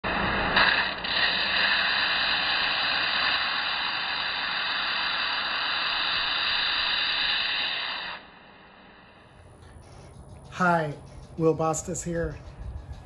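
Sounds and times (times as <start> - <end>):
belt grinder grinding steel: 0.1 - 8.2.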